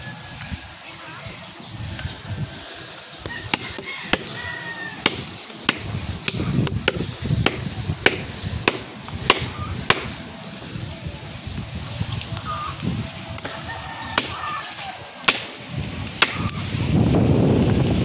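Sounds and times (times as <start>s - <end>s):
blade chopping into branch: 5.0s - 10.1s, 15.2s - 15.6s, 16.2s - 16.6s.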